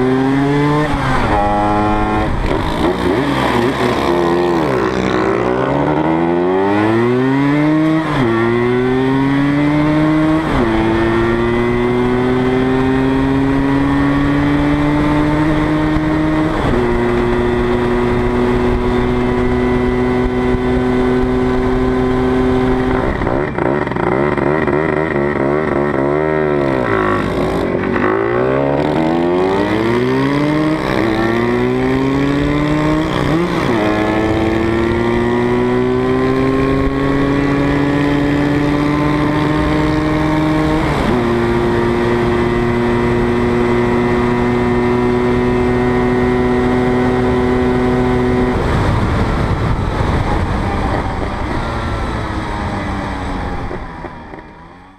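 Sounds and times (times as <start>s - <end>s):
scooter engine revving: 0.0s - 54.9s
wind rush: 45.8s - 54.0s.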